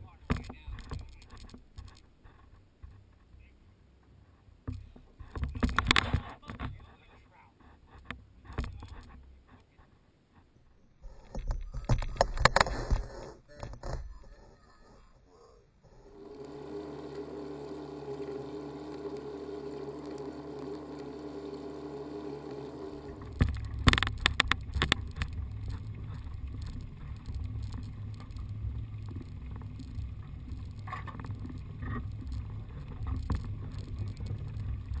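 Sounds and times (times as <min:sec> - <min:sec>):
outboard motor running: 0:15.9 - 0:35.0
low rumble: 0:20.9 - 0:35.0.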